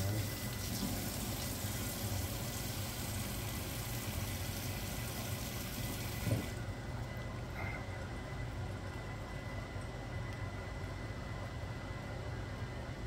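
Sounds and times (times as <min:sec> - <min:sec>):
water running from tap: 0:00.0 - 0:06.6.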